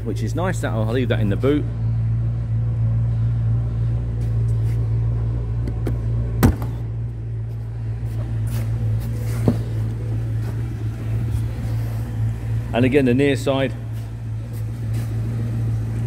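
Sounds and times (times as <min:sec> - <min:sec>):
steady low hum: 0:00.0 - 0:16.0
sharp thump: 0:05.7 - 0:06.9.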